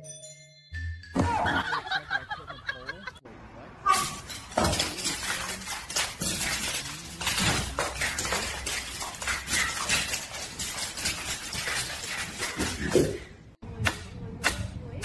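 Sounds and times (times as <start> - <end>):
dog claws clicking on marble floor: 4.0 - 13.1.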